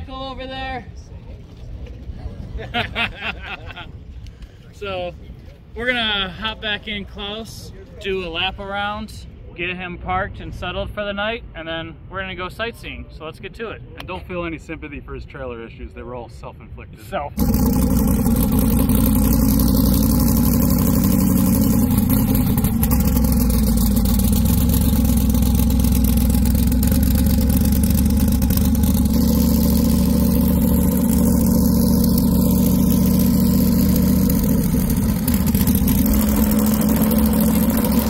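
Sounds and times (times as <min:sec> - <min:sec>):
car engine running steadily: 0:17.4 - 0:38.0.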